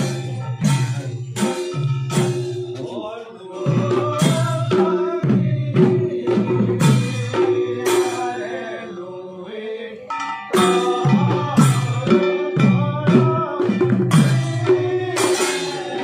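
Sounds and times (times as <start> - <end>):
hand cymbals clashing: 0.0 - 3.0, 10.1 - 16.0
hand drums beating: 0.0 - 3.0, 3.6 - 8.4, 10.1 - 16.0
men chanting: 0.0 - 16.0.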